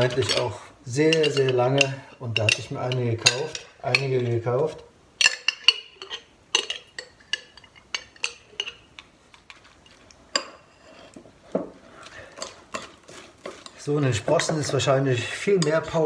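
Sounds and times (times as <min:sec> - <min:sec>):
spoon clinking against glass jar: 0:01.1 - 0:04.2, 0:05.2 - 0:08.9.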